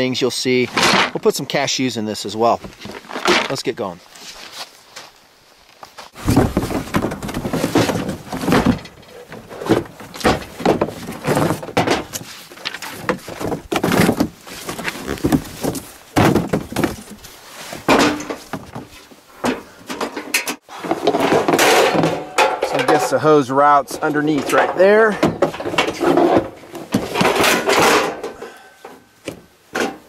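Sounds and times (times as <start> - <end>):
cardboard rustling: 5.9 - 19.7
stove thunking and scraping: 17.8 - 28.4.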